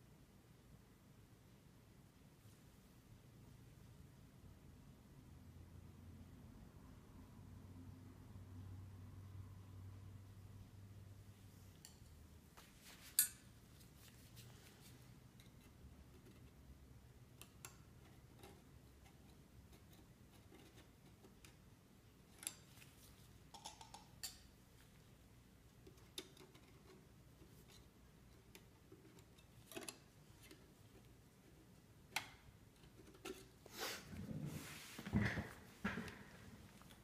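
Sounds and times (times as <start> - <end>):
hands rustling and handling: 12.4 - 15.8.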